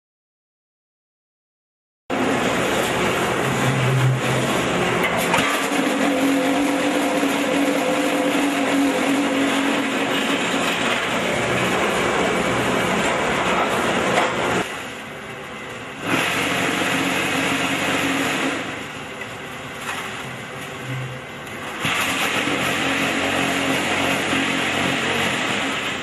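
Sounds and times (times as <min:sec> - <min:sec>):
block-making machinery running: 0:02.1 - 0:26.0.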